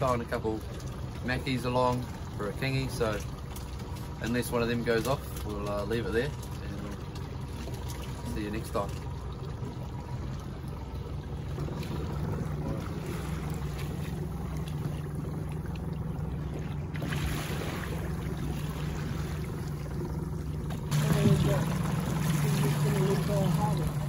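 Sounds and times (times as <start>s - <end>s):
boat motor humming: 0.0s - 24.0s
water washing along hull: 0.0s - 24.0s.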